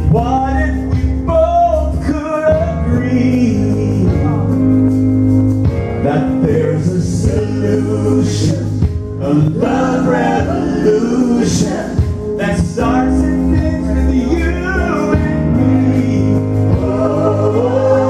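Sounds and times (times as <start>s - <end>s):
man singing: 0.0s - 4.8s, 6.0s - 18.0s
electric keyboard accompaniment: 0.0s - 18.0s.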